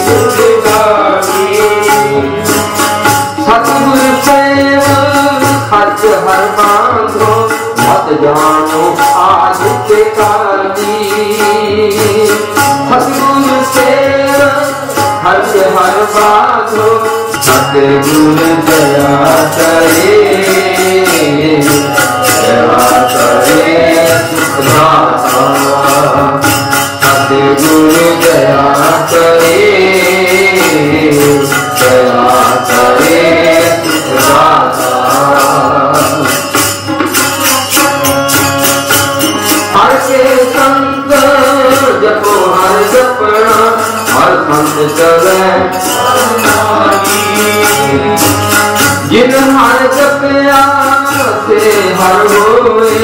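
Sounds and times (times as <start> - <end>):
harmonium melody: 0.0 - 53.0
man singing: 0.0 - 53.0
tabla strokes: 0.0 - 53.0.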